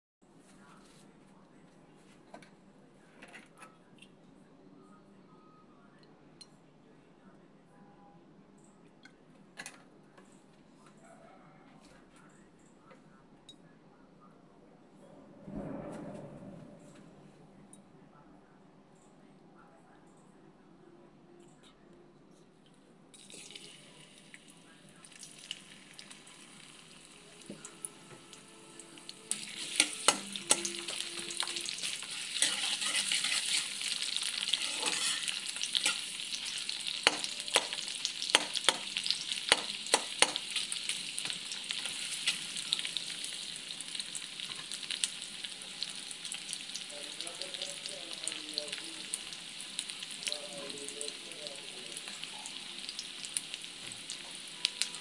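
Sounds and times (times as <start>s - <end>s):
onions sizzling in oil: 28.3s - 55.0s
metal spatula clacking on pan: 29.7s - 30.9s, 37.0s - 40.4s.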